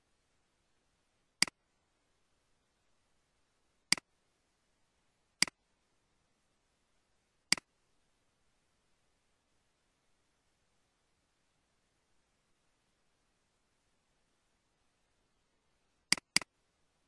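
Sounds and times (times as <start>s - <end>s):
computer mouse clicks: 3.9s - 4.1s, 7.5s - 7.7s, 16.1s - 16.5s.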